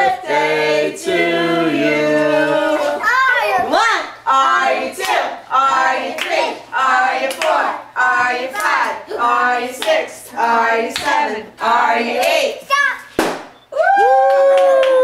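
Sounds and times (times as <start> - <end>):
children's excited voices and shouts: 2.9 - 4.1, 12.6 - 13.1.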